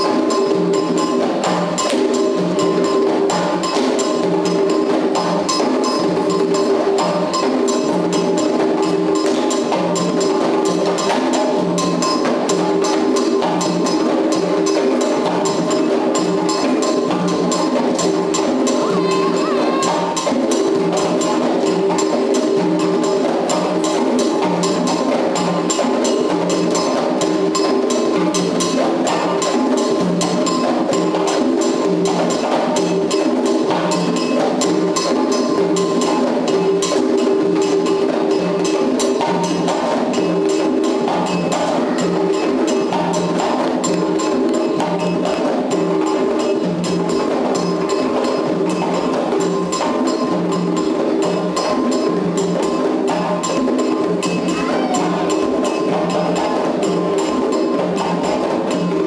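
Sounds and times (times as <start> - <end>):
hand drums playing rhythm: 0.0 - 59.0.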